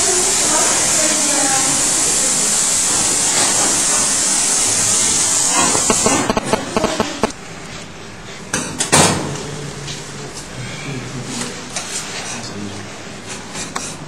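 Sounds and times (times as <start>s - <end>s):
water spraying from hose onto metal: 0.0s - 7.3s
loud thumps: 5.6s - 7.3s.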